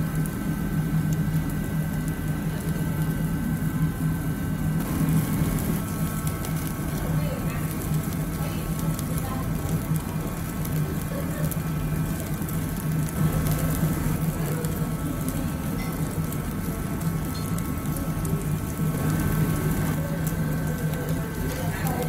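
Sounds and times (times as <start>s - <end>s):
low hum: 4.8s - 10.4s.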